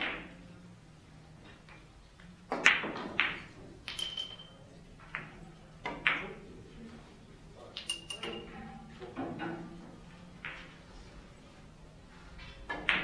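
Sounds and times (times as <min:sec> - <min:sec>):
billiard balls clicking: 0:00.0 - 0:00.4, 0:01.6 - 0:06.4, 0:07.7 - 0:08.5, 0:09.1 - 0:10.8, 0:12.5 - 0:13.0.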